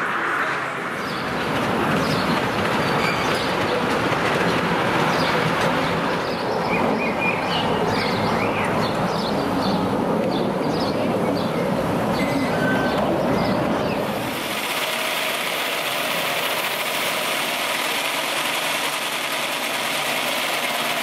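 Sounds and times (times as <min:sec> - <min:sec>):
miniature train running on track: 0:01.2 - 0:10.6, 0:14.0 - 0:21.0.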